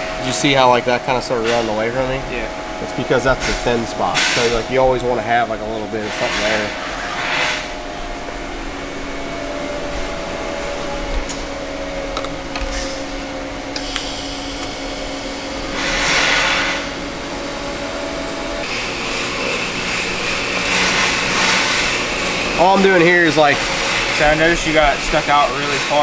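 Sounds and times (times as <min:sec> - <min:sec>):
steady background hum: 0:00.0 - 0:26.0
welding arc hiss: 0:13.8 - 0:26.0.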